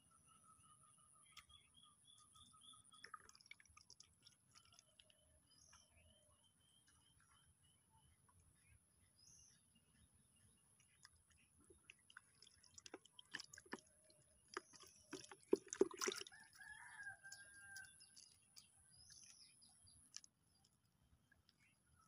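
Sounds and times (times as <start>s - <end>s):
faint rooster crowing: 16.2s - 18.2s.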